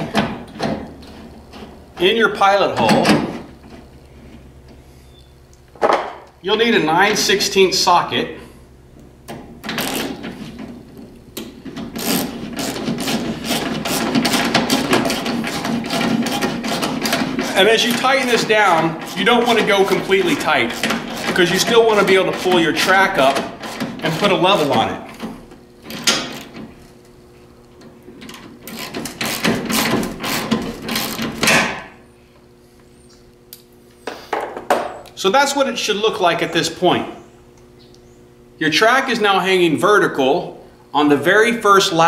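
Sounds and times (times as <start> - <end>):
hand ratchet ratcheting: 11.8 - 25.0, 28.3 - 31.5.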